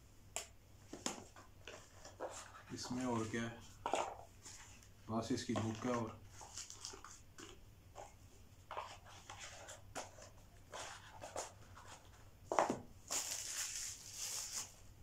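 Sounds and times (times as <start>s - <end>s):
paper rustling: 5.5s - 8.1s, 13.1s - 14.8s.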